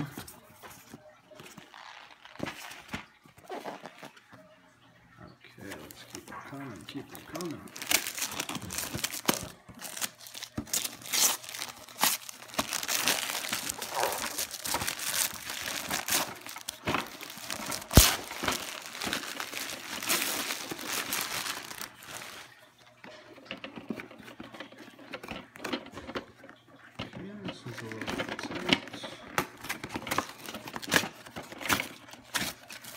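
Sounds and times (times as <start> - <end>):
wrapping paper tearing and crinkling: 1.4 - 4.2, 5.7 - 22.6, 27.8 - 32.9.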